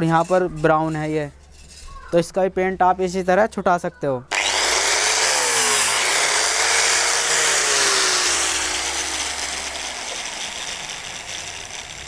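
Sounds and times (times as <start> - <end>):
angle grinder sanding wood: 4.3 - 12.0.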